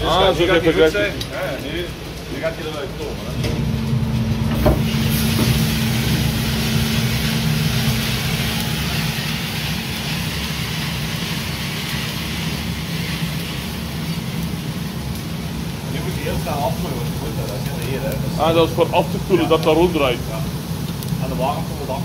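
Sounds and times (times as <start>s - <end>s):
motor and fan hum: 0.0s - 22.0s
coffee beans pouring rattle: 5.0s - 14.9s.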